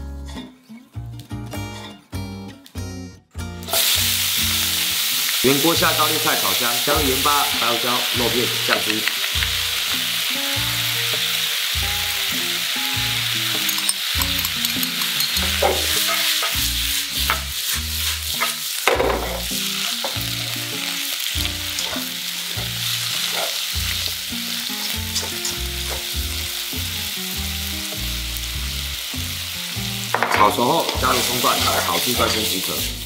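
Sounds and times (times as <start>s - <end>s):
food sizzling in a wok: 3.6s - 33.0s
spatula scraping wok: 7.0s - 26.2s
wok clattering: 7.1s - 11.6s, 12.3s - 26.2s.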